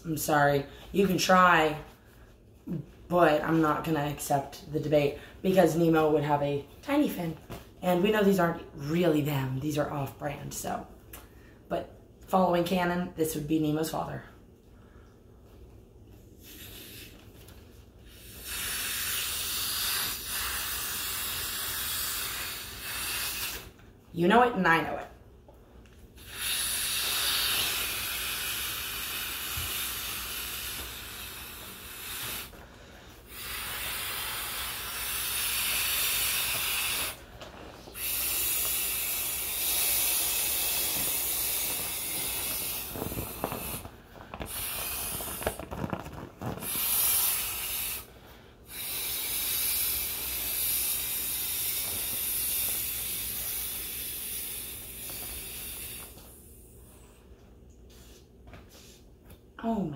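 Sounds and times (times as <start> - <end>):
person blowing into inflatable toy: 16.4 - 17.4, 18.0 - 23.8, 26.2 - 37.2, 37.9 - 56.5.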